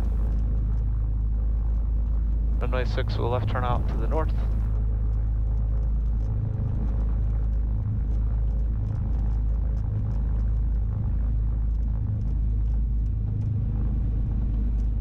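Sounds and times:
twin piston engines droning: 0.0 - 0.3, 2.6 - 4.7.

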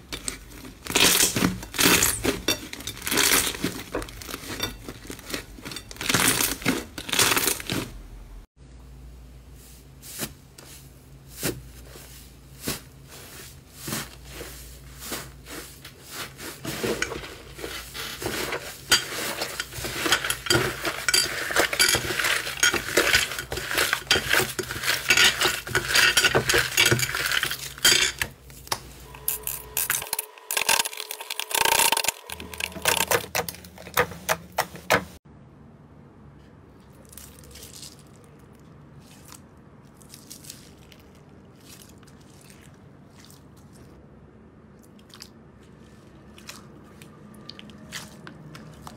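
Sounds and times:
hands squeezing slime: 39.0 - 43.9.

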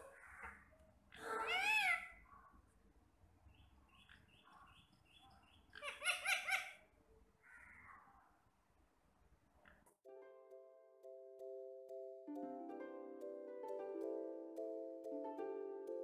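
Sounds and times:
parakeet screeching calls: 1.2 - 2.2, 5.8 - 6.8
parakeet high chirps: 4.0 - 6.8.

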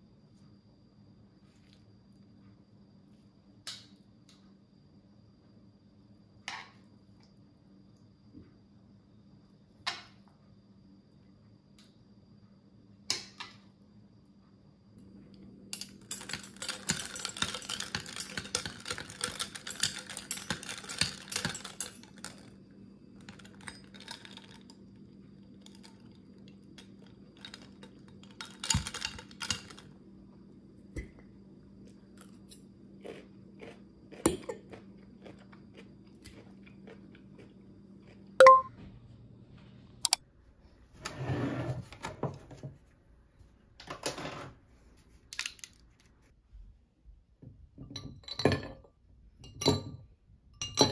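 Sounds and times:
sharp ringing clink: 38.4 - 38.7.

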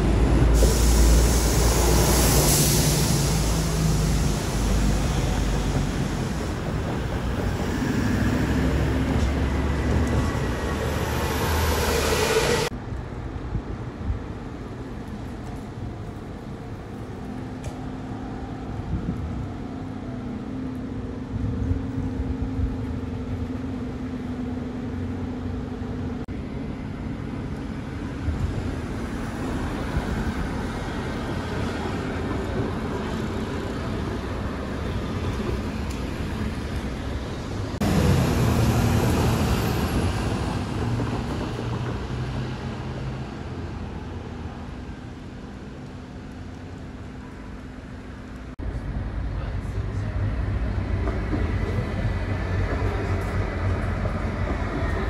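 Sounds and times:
buses and cars running: 0.0 - 55.0.

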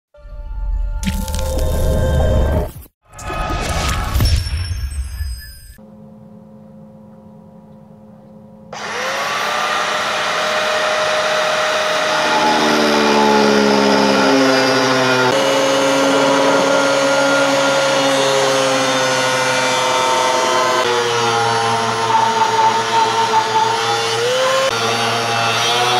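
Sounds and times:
angle grinder cutting steel: 8.8 - 25.9.

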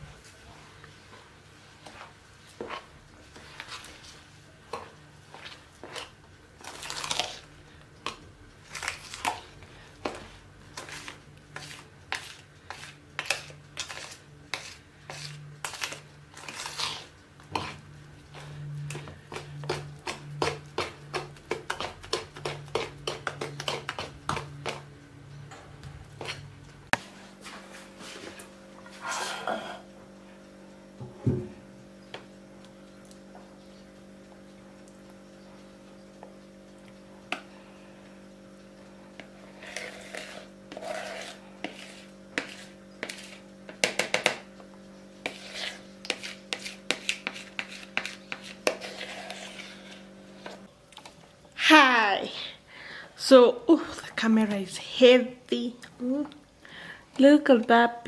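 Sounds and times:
spoon beating batter in bowl: 1.8 - 7.4, 8.0 - 24.9, 39.1 - 51.2.

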